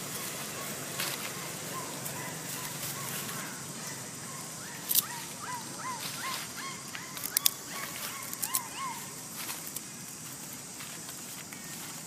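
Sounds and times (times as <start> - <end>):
outdoor background hiss: 0.0 - 12.0
short chirping animal calls: 0.6 - 9.2.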